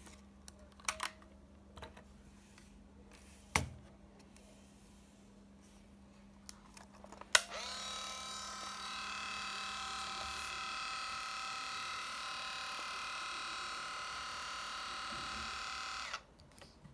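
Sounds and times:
film winding motor whirring: 7.4 - 16.2.

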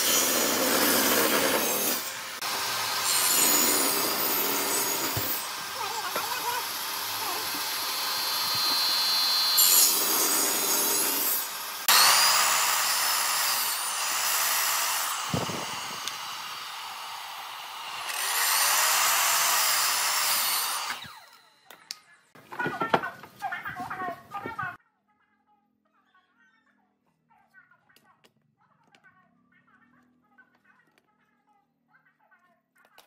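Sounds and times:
power tool cutting wood: 0.0 - 22.0.

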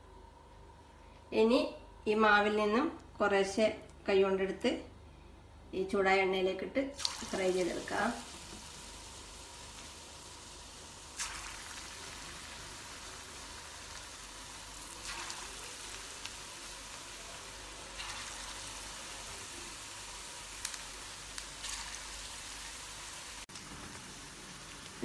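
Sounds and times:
batter sizzling in hot oil: 7.0 - 25.0.

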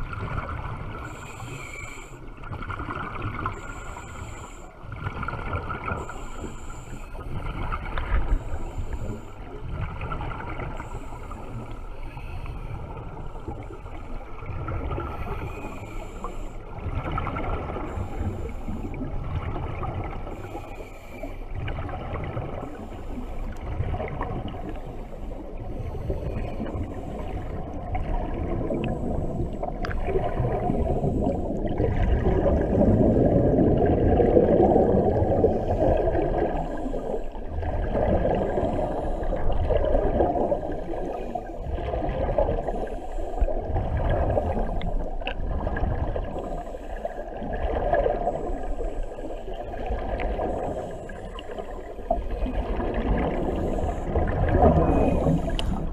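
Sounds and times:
underwater bubbles gurgling: 0.0 - 55.9.

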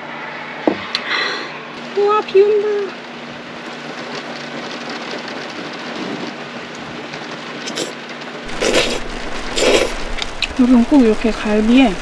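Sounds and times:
steady rain: 0.0 - 12.0
noodle slurps: 7.6 - 10.5.

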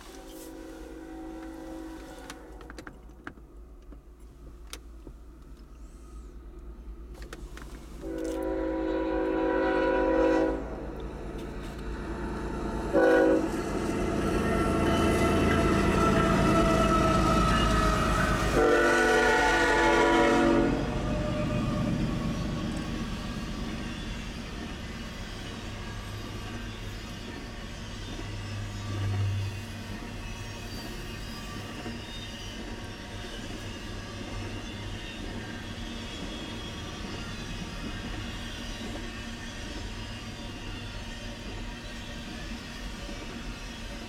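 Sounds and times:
locomotive horn: 0.0 - 2.7, 8.0 - 11.0, 12.9 - 22.0
freight train rumbling: 0.0 - 44.0.

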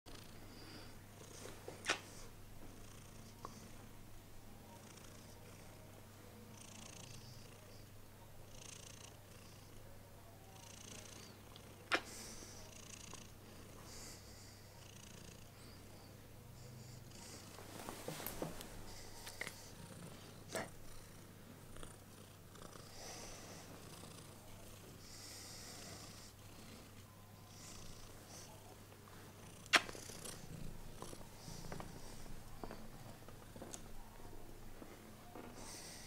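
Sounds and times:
cat purring: 16.8 - 34.1.

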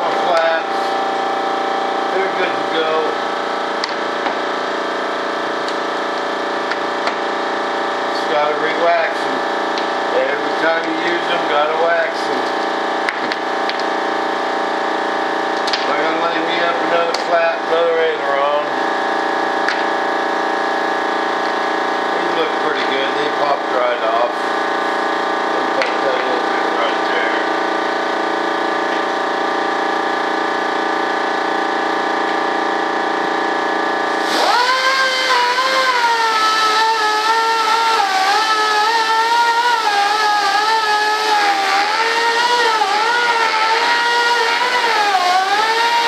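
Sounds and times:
steady machine whine: 0.0 - 46.0
rotary tool buffing wheel whine: 20.1 - 46.0.

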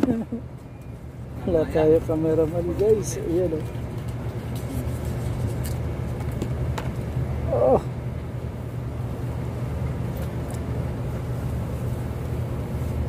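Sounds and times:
low engine-like drone: 0.0 - 13.0.

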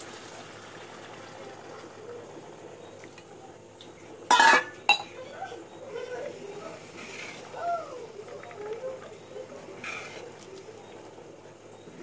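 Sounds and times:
faint steady hiss: 0.0 - 12.0
metallic clatter on pot: 4.3 - 5.1.

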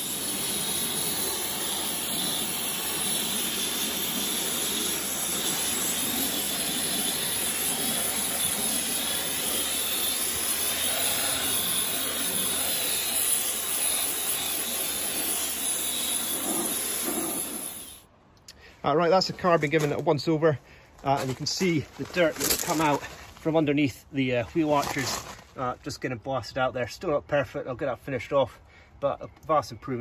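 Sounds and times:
pressure washer spraying: 0.0 - 18.0.

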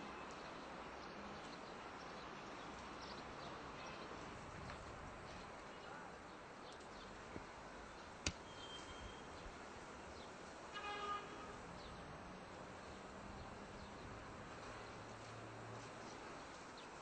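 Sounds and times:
faint outdoor background noise: 0.0 - 17.0
faint high chirps: 8.4 - 9.4.

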